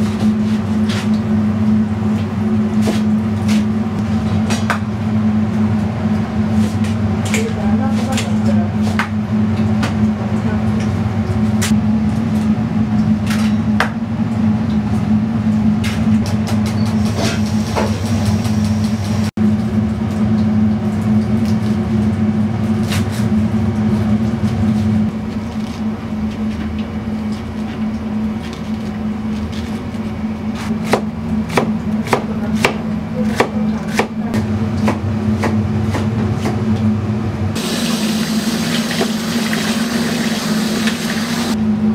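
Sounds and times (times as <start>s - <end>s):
kitchen equipment humming: 0.0s - 41.9s
knife chopping on plastic board: 30.8s - 34.2s.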